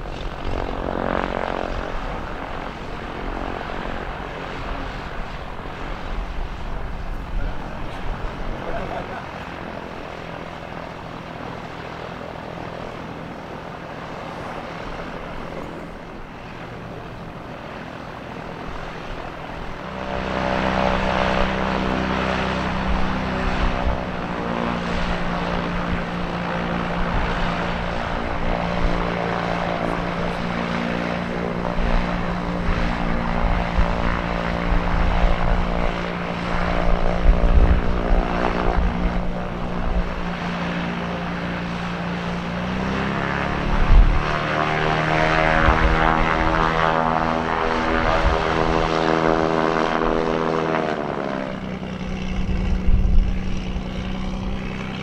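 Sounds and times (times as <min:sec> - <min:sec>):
aircraft engine and propeller: 0:00.0 - 0:55.0
gusty low rumble: 0:43.5 - 0:44.4, 0:52.0 - 0:55.0.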